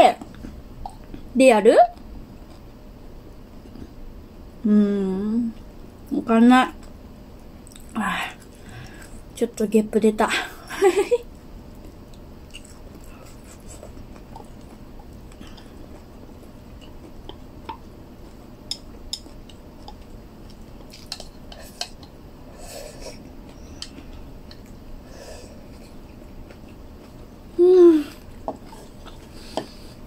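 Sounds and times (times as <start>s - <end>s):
low room hum: 0.0s - 30.0s
soft chewing: 6.8s - 9.3s, 11.2s - 30.0s.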